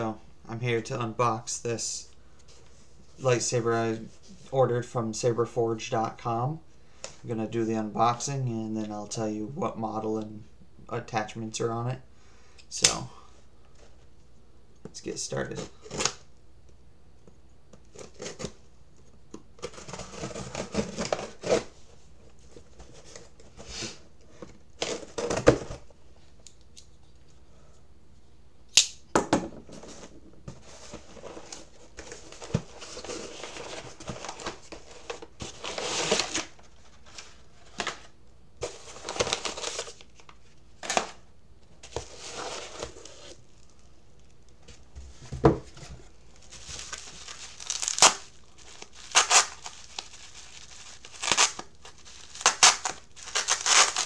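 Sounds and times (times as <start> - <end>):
bubble wrap rustling: 30.6 - 41.2, 45.7 - 54.0
cardboard flaps tearing: 46.6 - 54.0
knife slitting packing tape: 47.6 - 48.3, 49.0 - 50.0, 51.0 - 54.0.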